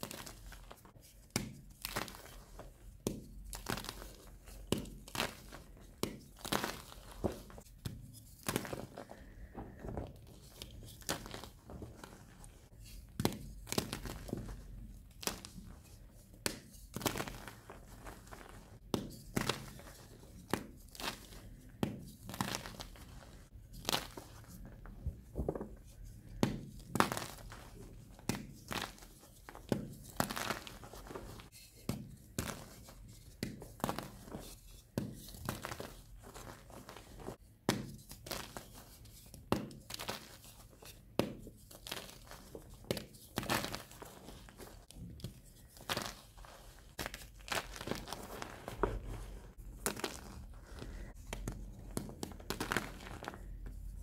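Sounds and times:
powdery rustling: 38.1s - 54.0s.

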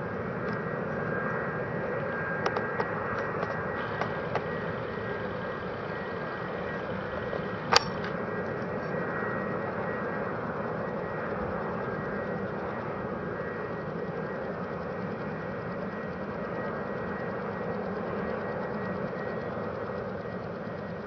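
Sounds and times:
jet engines running at low thrust: 0.0s - 21.0s
sharp click: 7.7s - 8.2s.

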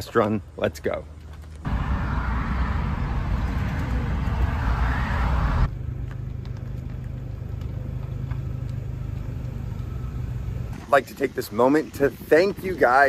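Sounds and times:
car engine and road noise: 1.6s - 10.8s
steady low hum: 1.7s - 10.8s.

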